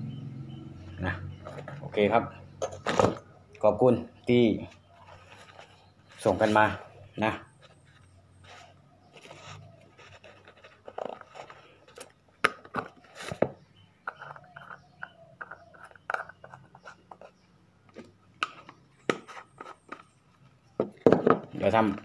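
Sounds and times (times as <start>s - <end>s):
clicks and knocks of handling: 9.1s - 20.2s.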